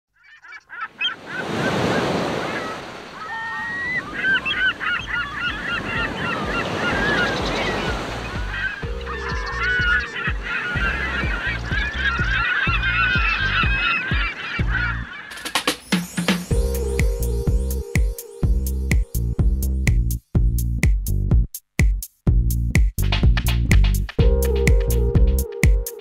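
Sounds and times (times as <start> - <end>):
geese honking: 0.2 - 15.7
pulsing electronic beat: 8.4 - 26.0.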